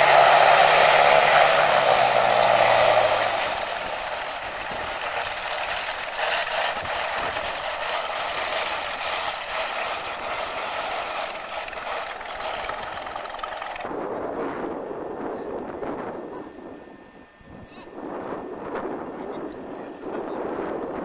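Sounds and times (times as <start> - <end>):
propeller plane engines droning: 0.0 - 21.0.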